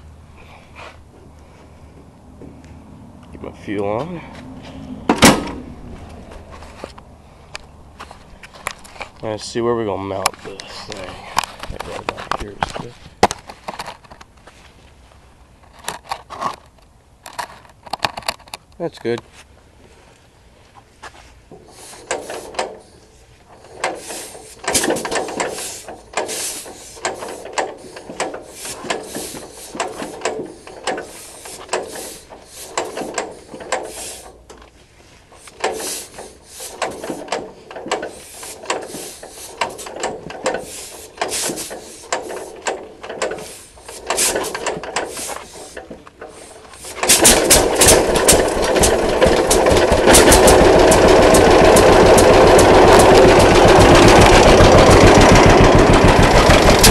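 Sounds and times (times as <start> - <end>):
engine turned over by hand: 5.0 - 14.4, 15.6 - 18.7, 21.5 - 56.9
engine running with even beat: 46.4 - 56.9.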